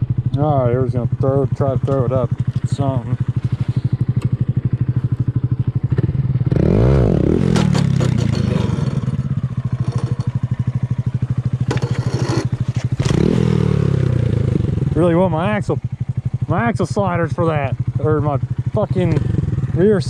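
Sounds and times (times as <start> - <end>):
motorcycle engine idling and revving: 0.0 - 20.0
clattering scraping knocks: 9.8 - 10.4, 11.7 - 13.2.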